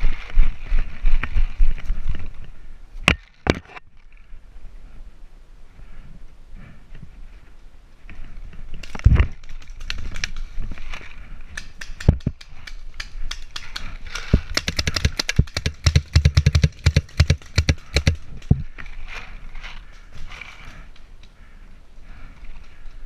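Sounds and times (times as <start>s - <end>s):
paintballs hitting wood: 11.5s - 18.6s
paintball markers shooting: 11.6s - 18.2s.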